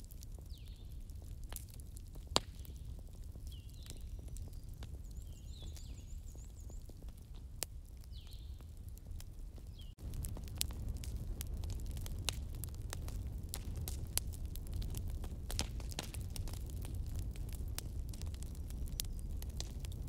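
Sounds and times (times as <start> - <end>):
wood fire crackling and popping: 0.0 - 20.0
small birds chirping: 0.4 - 1.1, 2.5 - 8.8, 9.6 - 10.0.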